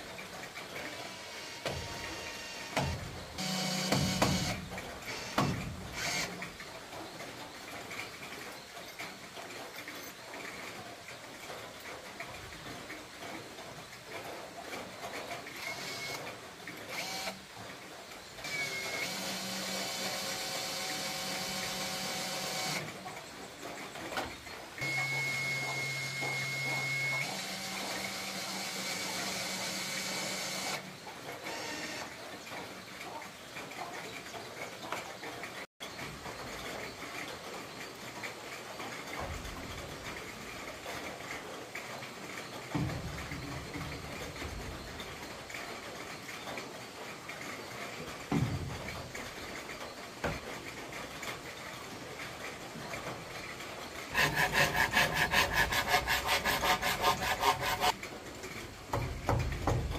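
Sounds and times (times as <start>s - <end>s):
small electric motor whining: 1.2s - 5.4s, 17.0s - 17.4s, 24.8s - 30.8s.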